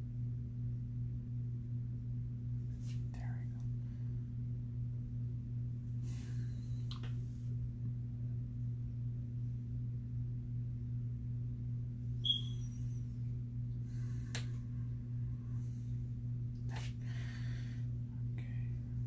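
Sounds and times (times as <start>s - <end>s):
steady low hum: 0.0s - 19.0s
high squeak: 12.2s - 13.0s.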